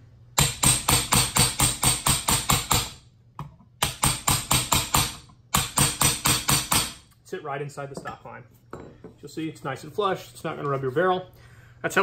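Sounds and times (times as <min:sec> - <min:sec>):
hammer tapping on metal punch: 0:00.4 - 0:07.0.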